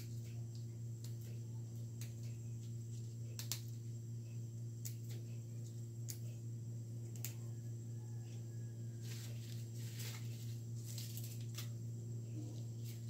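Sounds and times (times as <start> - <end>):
steady low hum: 0.0 - 13.0
leaves being plucked: 3.3 - 3.8, 9.0 - 11.8.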